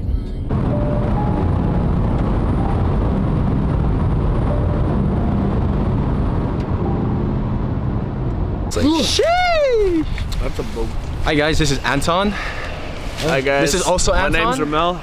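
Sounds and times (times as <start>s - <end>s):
road and wind rumble inside car: 0.0s - 15.0s.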